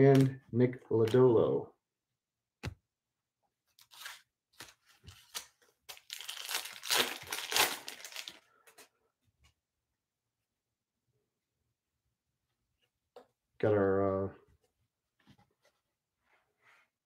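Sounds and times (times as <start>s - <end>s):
foil wrapper crinkling: 5.2s - 8.4s
foil wrapper tearing: 5.2s - 8.4s.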